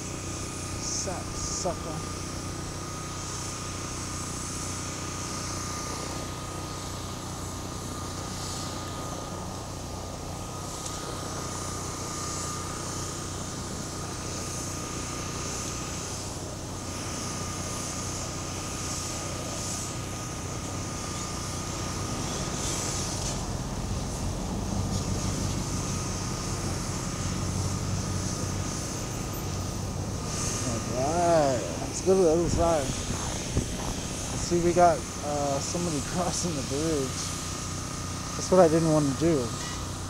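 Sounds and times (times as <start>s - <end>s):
motor humming with high whine: 0.0s - 40.0s.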